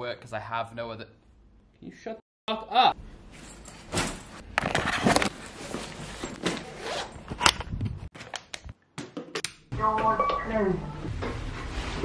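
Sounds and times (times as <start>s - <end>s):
rustling and scraping handling noise: 3.3s - 8.3s.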